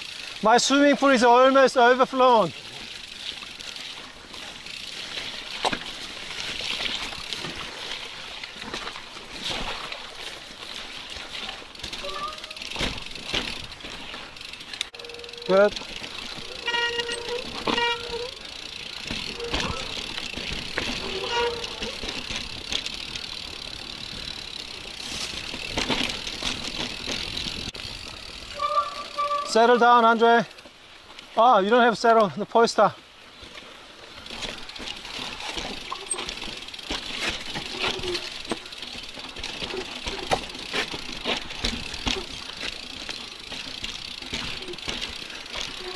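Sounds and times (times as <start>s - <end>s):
tyres splashing through mud: 2.1s - 14.9s
bike knocks and rattles: 4.4s - 9.9s, 10.6s - 29.6s, 34.2s - 45.9s.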